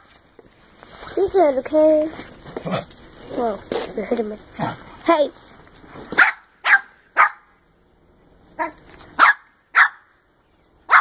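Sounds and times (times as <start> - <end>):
dog barking: 6.2 - 7.6, 8.6 - 10.1.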